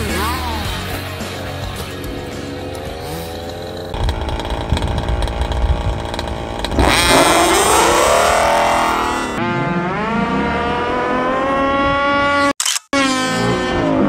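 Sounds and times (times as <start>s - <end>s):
small two-stroke engine revving: 2.2s - 14.0s.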